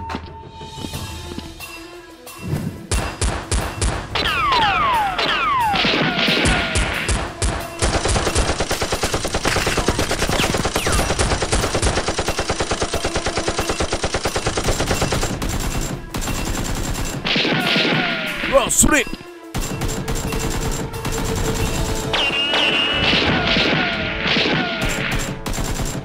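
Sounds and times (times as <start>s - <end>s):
rapid automatic gunfire: 5.2s - 18.2s, 19.5s - 26.0s.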